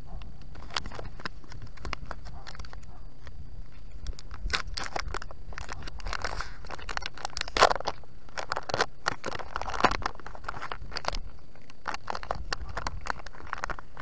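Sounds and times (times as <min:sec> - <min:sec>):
paper wrapper tearing and crinkling: 0:04.0 - 0:14.0.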